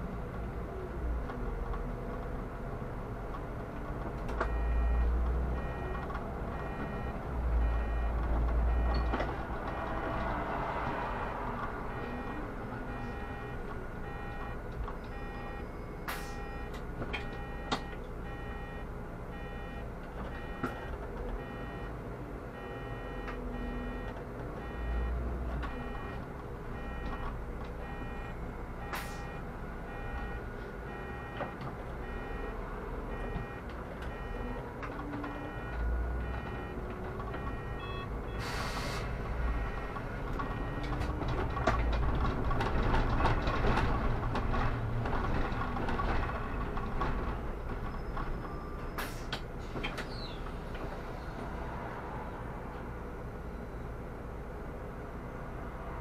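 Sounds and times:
bus engine rumble: 0.0 - 56.0
electronic warning beep: 4.5 - 10.0, 11.9 - 21.9, 22.6 - 26.2, 26.8 - 34.6, 35.2 - 42.0.

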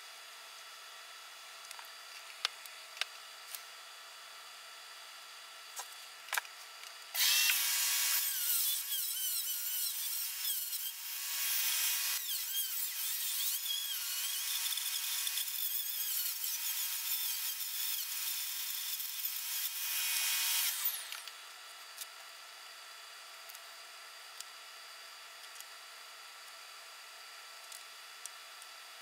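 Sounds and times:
rotary tool whining: 7.1 - 22.1.

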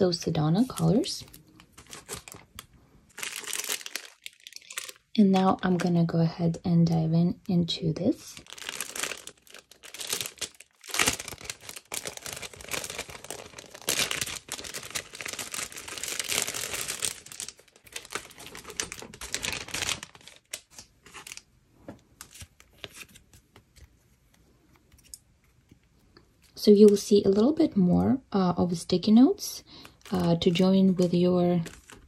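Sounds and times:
plastic wrapping crinkling: 0.0 - 6.1, 7.8 - 23.8, 29.6 - 32.0.

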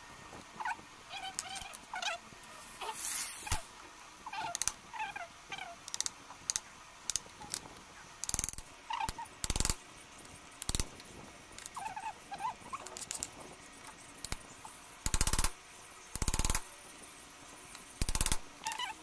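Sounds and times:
animal squeaking: 0.6 - 5.8, 11.7 - 13.0, 18.6 - 19.0.

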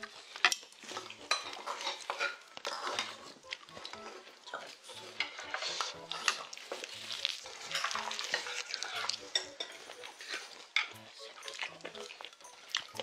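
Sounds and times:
chewing: 0.0 - 13.0
spoons scraping against bowls: 0.1 - 13.0.

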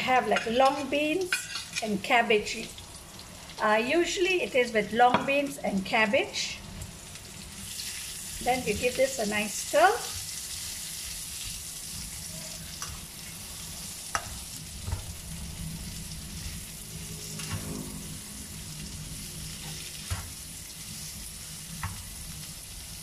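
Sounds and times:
food sizzling in a pan: 0.0 - 23.0
metal spatula scraping pan: 0.3 - 1.8, 16.4 - 18.7.

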